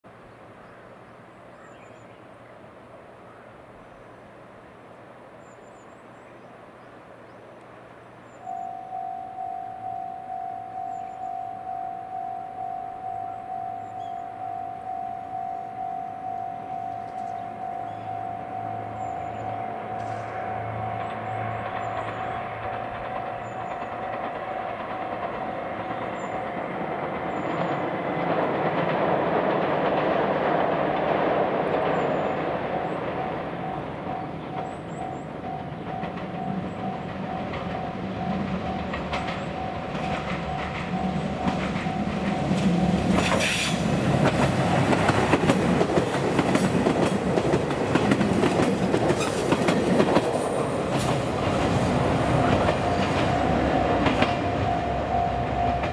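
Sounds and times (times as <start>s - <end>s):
diesel train engines running: 0.1s - 55.9s
faint bird chirps: 0.2s - 4.2s, 8.2s - 22.5s
wheels clattering over rail joints: 16.7s - 55.9s.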